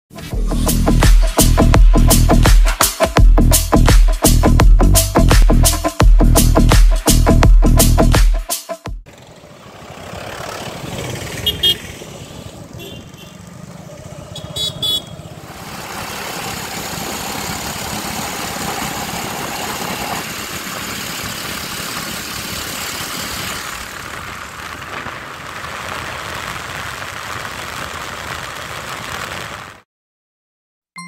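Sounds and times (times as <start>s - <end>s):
motorcycle engine running: 9.1s - 25.6s
wind and road noise: 9.1s - 29.8s
horn beeps: 11.4s - 11.9s, 14.3s - 15.3s.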